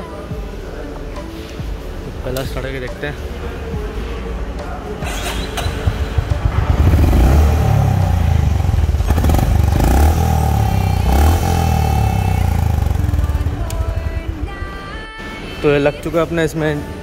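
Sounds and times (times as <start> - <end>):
motorcycle engine starting and revving: 5.0 - 15.2.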